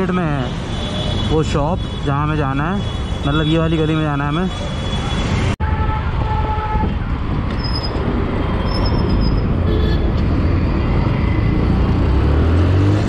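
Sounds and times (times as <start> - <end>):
motorcycle engine and road rumble: 6.0 - 13.0
vehicle horn: 9.6 - 10.2.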